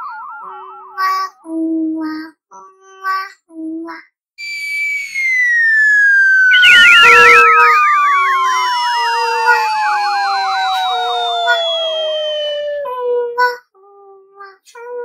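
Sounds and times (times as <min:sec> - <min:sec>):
falling whistle tone: 0:00.0 - 0:01.3, 0:04.4 - 0:13.0
falling warbling tone: 0:00.0 - 0:01.4, 0:04.4 - 0:13.0.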